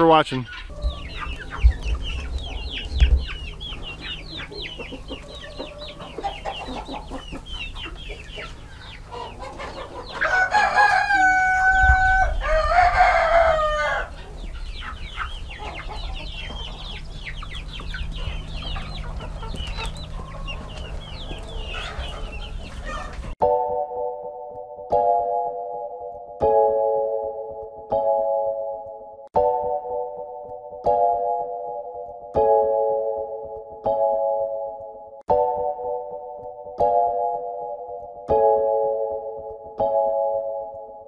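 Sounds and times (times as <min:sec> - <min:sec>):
chickens clucking: 0:00.0 - 0:23.4
rooster crowing: 0:04.6 - 0:06.8, 0:08.9 - 0:14.4, 0:18.3 - 0:23.3.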